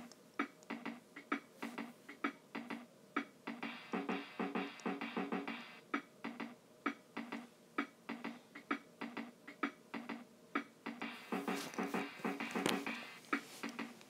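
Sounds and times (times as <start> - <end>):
simple electronic music: 0.0 - 14.0.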